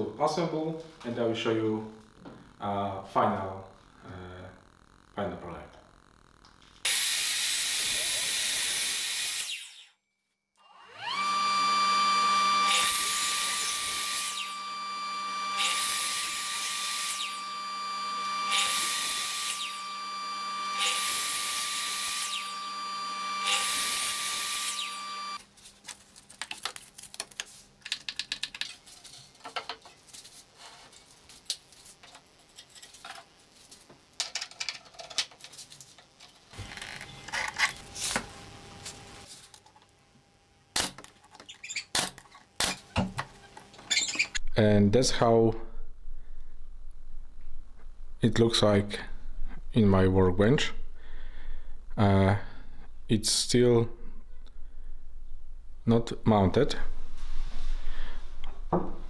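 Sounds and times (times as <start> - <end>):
saw blade cutting wood: 6.9 - 9.9, 10.6 - 25.4
miter saw motor whine: 10.6 - 25.4.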